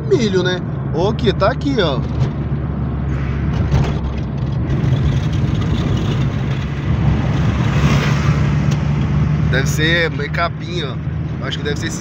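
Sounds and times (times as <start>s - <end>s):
car engine hum: 0.0s - 12.0s
road noise: 0.0s - 12.0s.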